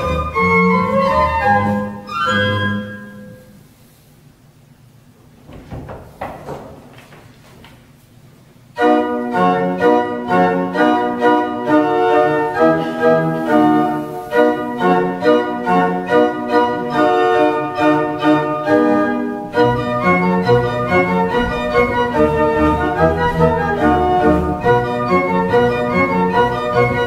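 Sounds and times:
pipe organ playing dance music: 0.0 - 3.3, 8.8 - 27.0.

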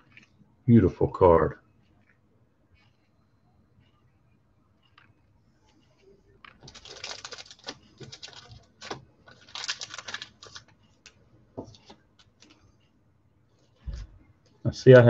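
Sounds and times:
cards flipping clicks and rustles: 6.4 - 12.6.

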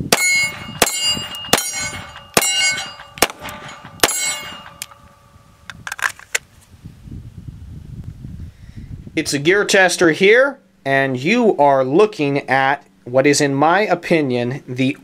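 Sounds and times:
steel plate targets ringing: 0.0 - 5.7
pistol shots: 0.1 - 5.2.

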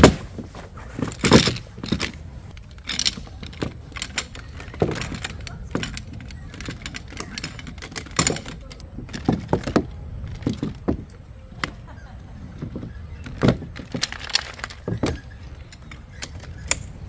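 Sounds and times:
chair poles clacking together: 0.0 - 17.0
chair feet knocking on wooden deck: 9.0 - 11.1.

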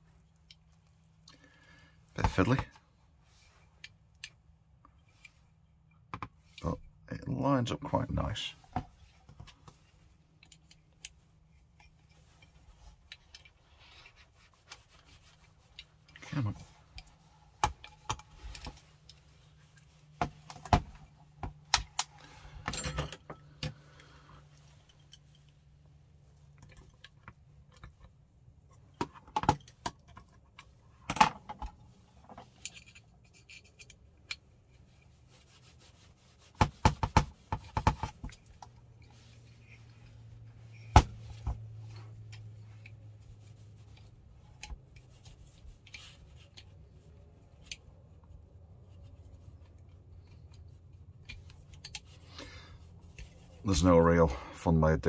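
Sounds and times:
knocks and rubbing of parts: 8.6 - 23.9, 26.5 - 46.9.

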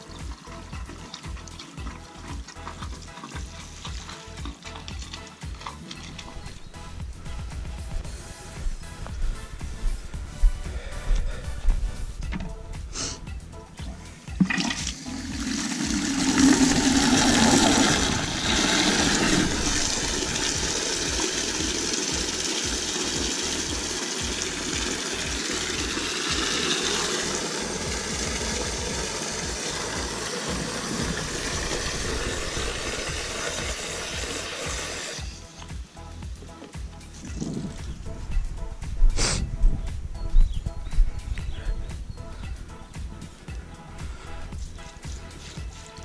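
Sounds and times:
water running into plastic bucket: 0.0 - 8.0, 13.8 - 35.7.

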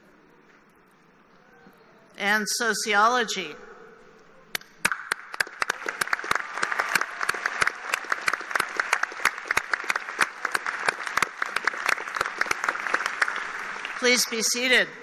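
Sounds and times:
crowd applauding: 4.8 - 14.6.

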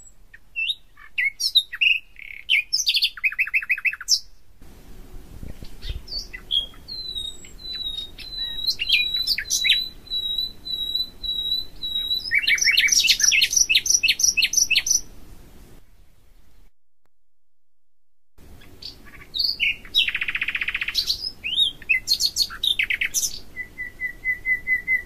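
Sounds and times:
songbirds chirping: 0.0 - 16.7, 18.4 - 25.0
short whistled bird notes: 18.8 - 25.0.

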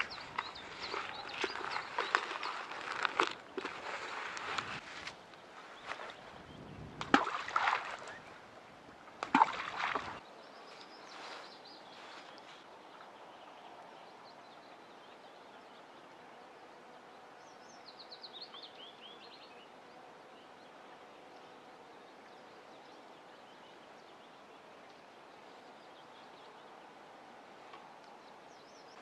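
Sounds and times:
rustling and handling noises: 0.0 - 6.2, 10.7 - 12.7.

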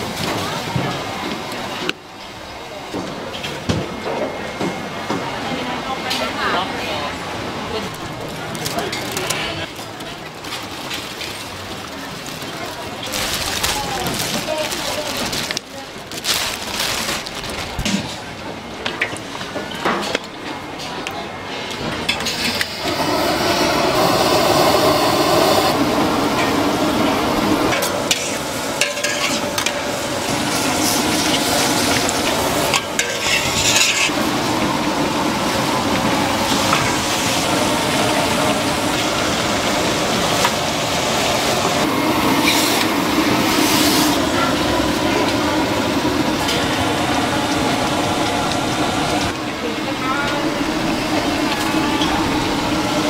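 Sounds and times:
metal spatulas scraping a wok: 32.9 - 34.1.

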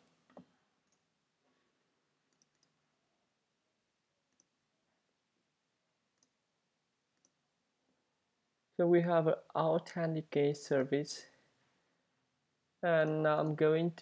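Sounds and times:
faint computer mouse clicks: 2.3 - 2.7.

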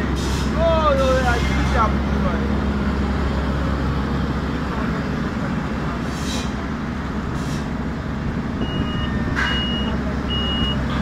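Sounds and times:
road roller engine drone: 0.0 - 11.0
reversing alarm beeping: 8.6 - 10.9.

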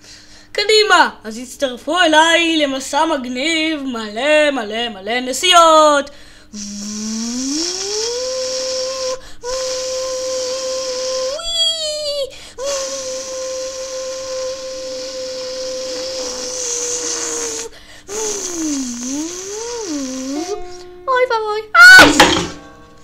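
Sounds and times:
child imitating car engine: 6.6 - 20.6.

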